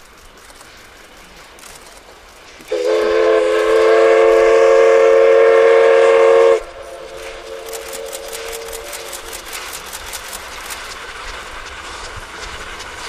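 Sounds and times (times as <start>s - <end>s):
train running past: 0.0s - 13.0s
steam locomotive whistle: 2.7s - 9.5s.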